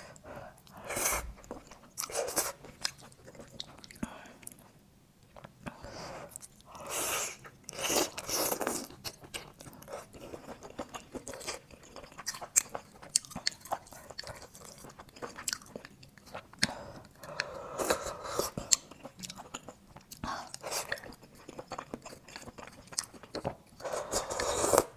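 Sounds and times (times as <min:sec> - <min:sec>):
wet chewing: 0:07.6 - 0:17.5.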